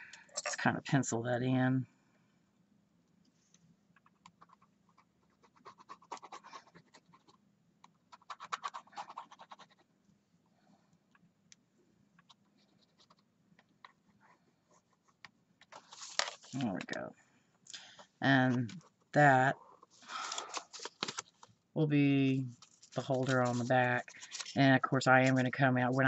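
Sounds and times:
pencil scratching on paper: 5.2 - 7.4, 8.1 - 9.8, 14.0 - 15.2.

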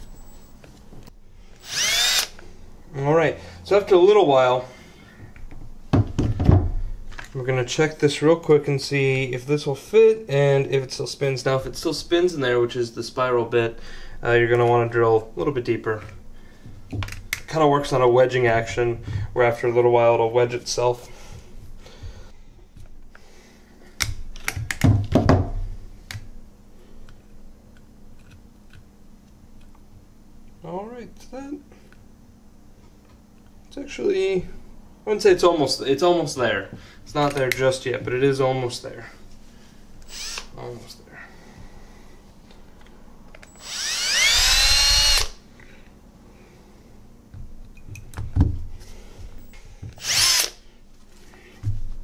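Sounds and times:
cordless drill whining: 1.6 - 2.4, 40.0 - 40.5, 43.4 - 45.4, 49.9 - 50.6.

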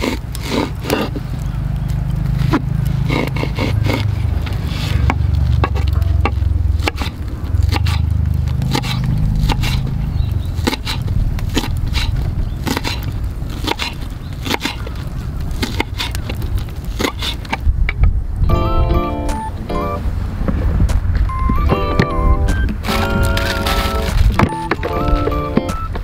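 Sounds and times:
low rumble: 4.0 - 13.5
knife chopping on wooden board: 4.8 - 8.0, 8.7 - 9.8.

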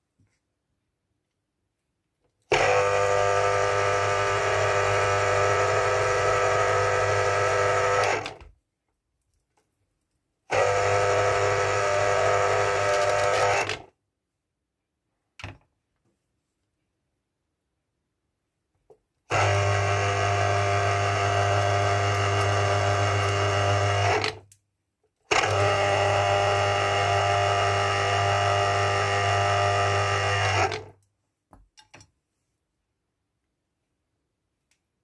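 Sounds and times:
citrus juicer motor humming: 2.5 - 8.4, 10.5 - 13.8, 19.3 - 24.4, 25.3 - 30.9.

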